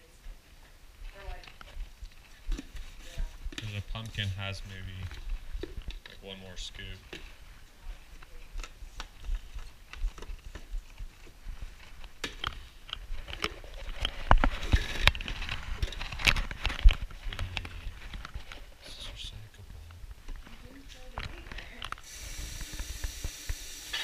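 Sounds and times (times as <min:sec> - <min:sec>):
objects clicking and crinkling: 0:04.9 - 0:07.3, 0:08.2 - 0:18.7, 0:20.3 - 0:22.1.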